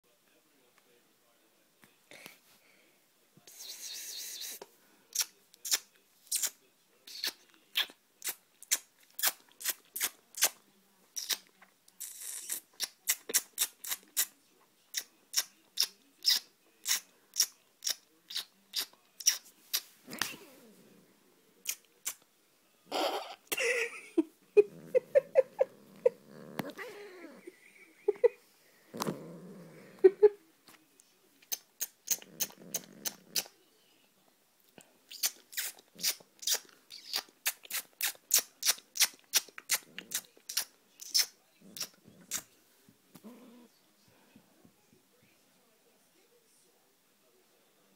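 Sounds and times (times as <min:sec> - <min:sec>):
kissing smacks: 0:04.2 - 0:10.6, 0:11.2 - 0:14.3, 0:14.9 - 0:20.4, 0:21.6 - 0:22.2, 0:31.4 - 0:33.5, 0:35.1 - 0:42.5
cat growling: 0:20.1 - 0:21.1, 0:24.6 - 0:27.6, 0:28.8 - 0:30.2, 0:32.1 - 0:33.5, 0:43.1 - 0:43.8
person laughing: 0:23.5 - 0:28.4, 0:30.0 - 0:30.4.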